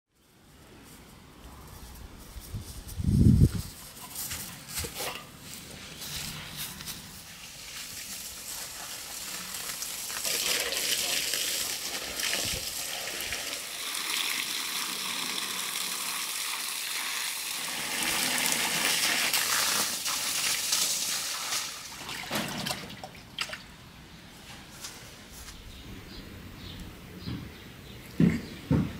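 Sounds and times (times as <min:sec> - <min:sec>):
hose spraying water: 0:04.8 - 0:22.9
fish splashing in a basin: 0:07.7 - 0:23.8.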